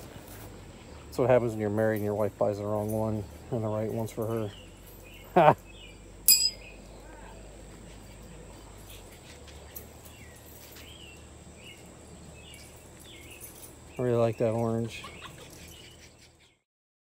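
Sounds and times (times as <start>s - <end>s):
short sharp clink: 6.3s - 6.7s.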